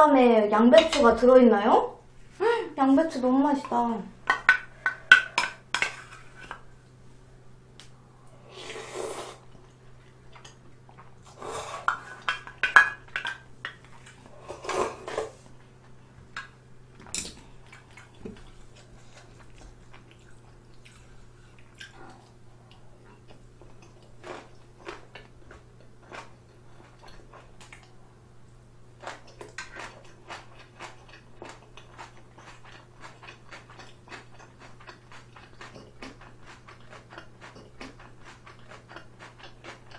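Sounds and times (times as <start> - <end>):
chewing clicks: 29.0 - 39.9.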